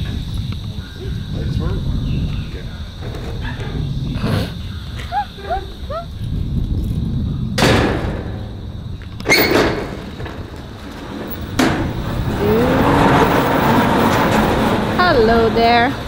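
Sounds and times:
metal doors rumbling open: 0:00.0 - 0:06.1, 0:07.2 - 0:16.0
sharp metal bangs: 0:07.6 - 0:16.0
drawn-out creak: 0:09.1 - 0:16.0.

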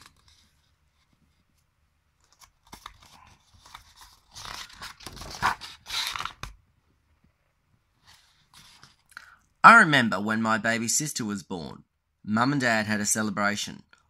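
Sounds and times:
book page turning: 0:00.0 - 0:06.6, 0:08.0 - 0:09.1
paper rustling: 0:00.0 - 0:06.6, 0:08.0 - 0:09.1.

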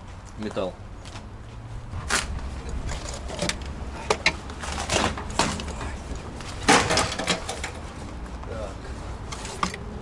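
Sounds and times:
hand tools knocking and clanking: 0:02.9 - 0:06.0, 0:06.6 - 0:07.8.

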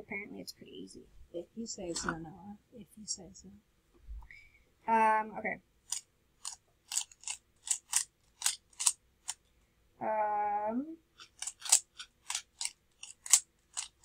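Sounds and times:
plastic cube clicking: 0:05.9 - 0:09.4, 0:11.2 - 0:14.0.

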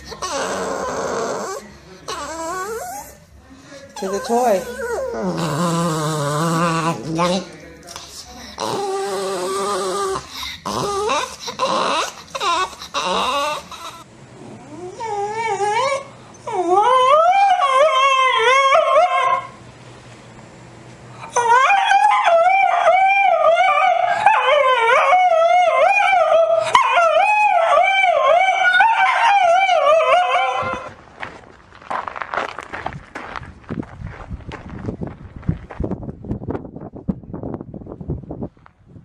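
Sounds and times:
dog howling: 0:00.0 - 0:03.2, 0:04.0 - 0:07.4, 0:08.6 - 0:19.6, 0:21.3 - 0:30.9.

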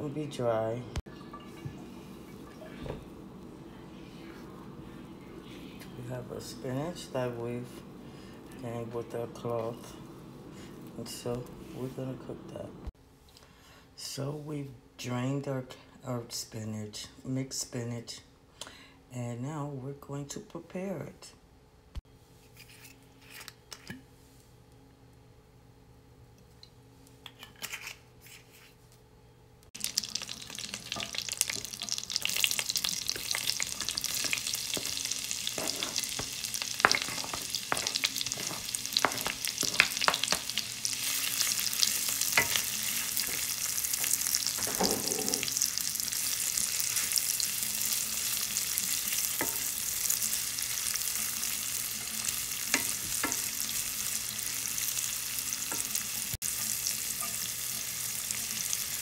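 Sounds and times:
vegetables sizzling in oil: 0:29.8 - 0:59.0
wooden spoon scraping a pan: 0:30.6 - 0:47.2.

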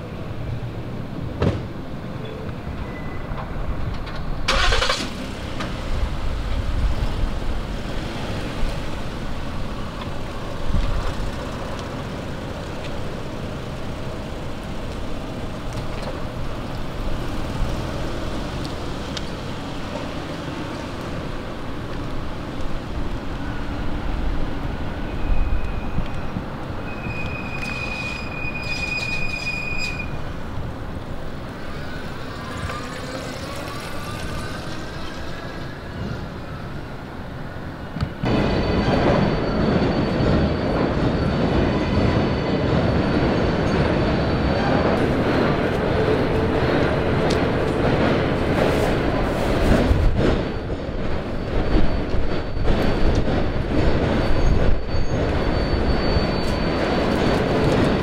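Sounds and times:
subway train rumbling: 0:00.0 - 0:58.0
high wheel squeal: 0:24.8 - 0:58.0
sharp train screech: 0:25.0 - 0:30.4, 0:31.5 - 0:36.9, 0:38.3 - 0:46.6, 0:48.6 - 0:58.0.

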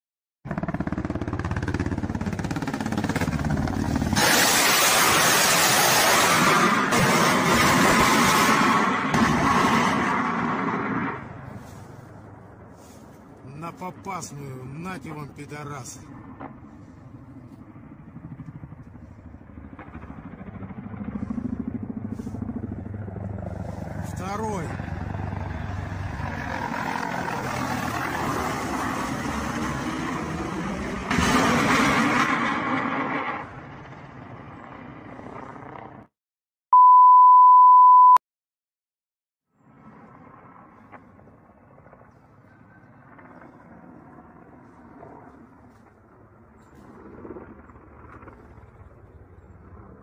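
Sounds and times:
helicopter rotors beating: 0:00.5 - 0:36.1, 0:39.6 - 0:50.0
rockets launching with rushing hiss: 0:04.1 - 0:10.8.

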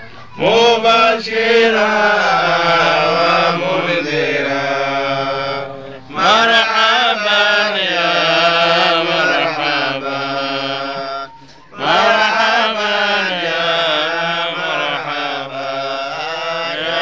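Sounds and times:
men chanting devotional song: 0:00.3 - 0:17.0.

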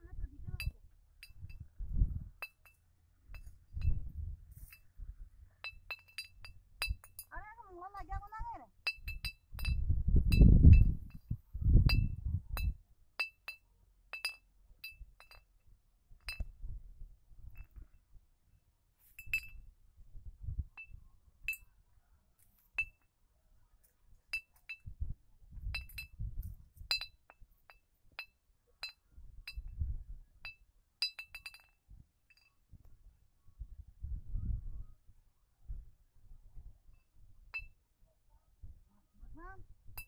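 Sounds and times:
wind buffeting microphone: 0:00.0 - 0:02.5, 0:03.3 - 0:05.5, 0:06.4 - 0:12.9, 0:16.2 - 0:17.8, 0:19.3 - 0:21.5, 0:24.8 - 0:27.1, 0:29.1 - 0:30.5, 0:32.7 - 0:37.7
glass bottle clinking: 0:00.6 - 0:01.6, 0:02.4 - 0:04.0, 0:05.6 - 0:07.3, 0:08.9 - 0:15.5, 0:16.2 - 0:16.5, 0:19.2 - 0:19.6, 0:22.8 - 0:23.0, 0:24.3 - 0:24.9, 0:25.7 - 0:26.2, 0:26.8 - 0:29.7, 0:30.4 - 0:32.5.

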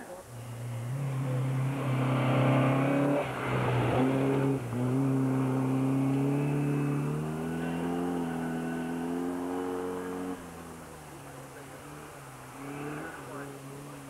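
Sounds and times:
rally car engine accelerating: 0:00.0 - 0:14.0.

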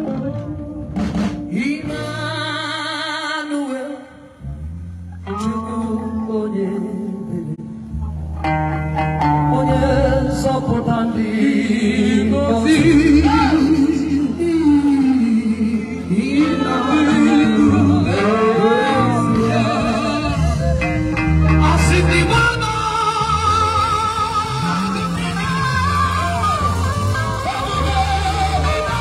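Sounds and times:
amplified backing music with bass: 0:00.0 - 0:29.0
woman singing gospel: 0:09.5 - 0:20.8.

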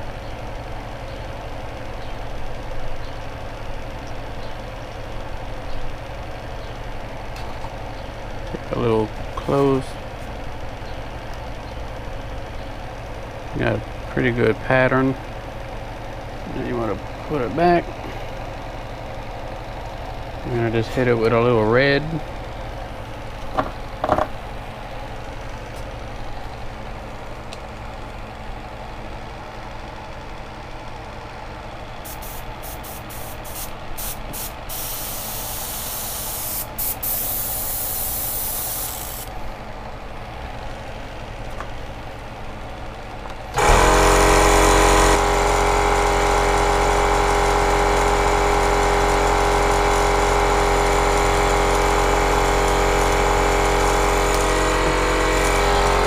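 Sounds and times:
airbrush hissing: 0:32.1 - 0:39.3
electric motor humming: 0:43.6 - 0:56.0.

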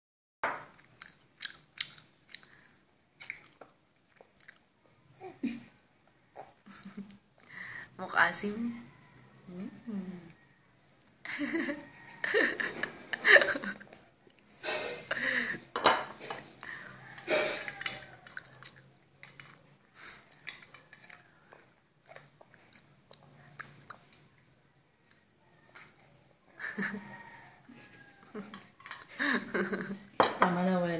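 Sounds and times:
baby lip smacks and mouth clicks: 0:25.1 - 0:26.1.

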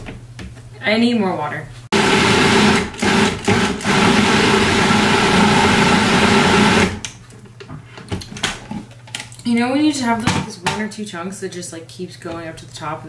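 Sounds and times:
food processor chopping: 0:01.9 - 0:07.1.

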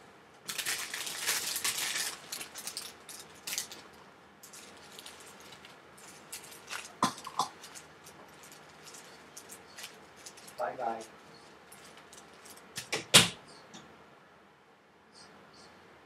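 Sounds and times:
plastic bags crinkling: 0:00.4 - 0:13.0.

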